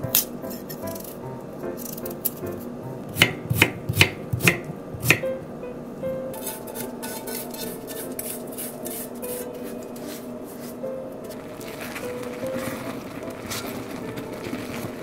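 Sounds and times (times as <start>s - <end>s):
soft background music: 0.0s - 15.0s
knife chopping on wooden board: 3.2s - 5.3s
metal spoon scraping pot: 6.3s - 10.2s.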